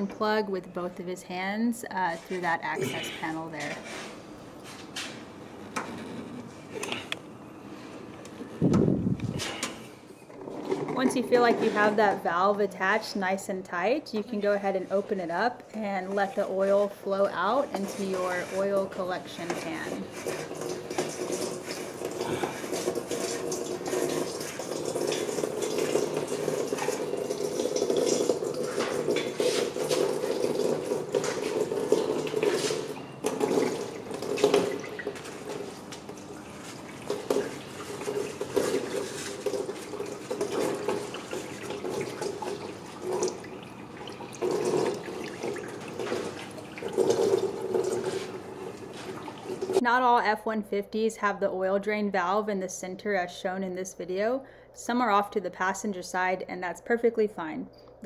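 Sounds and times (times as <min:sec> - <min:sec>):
oil pouring into pan: 0:20.1 - 0:49.8.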